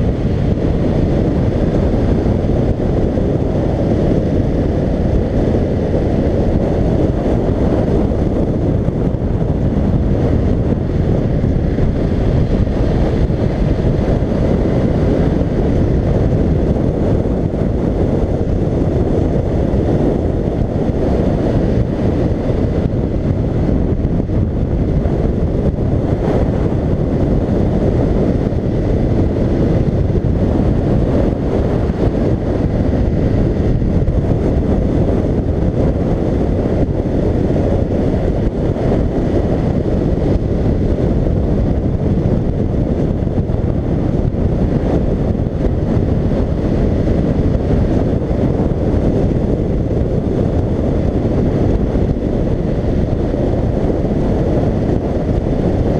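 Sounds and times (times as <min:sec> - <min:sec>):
wind rushing over microphone: 0:00.0 - 0:55.9.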